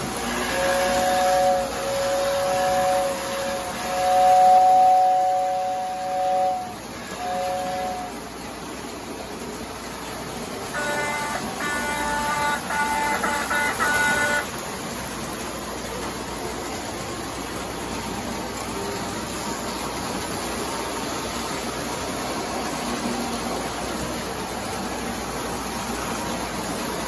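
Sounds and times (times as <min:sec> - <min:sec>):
train horn toots: 0:00.0 - 0:08.4, 0:10.6 - 0:14.6
model trains rumbling: 0:00.0 - 0:27.0.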